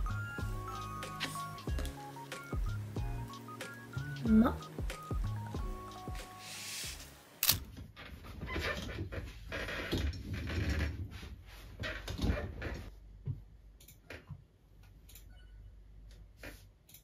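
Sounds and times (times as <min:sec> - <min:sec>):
chair creaking: 0:06.6 - 0:12.9.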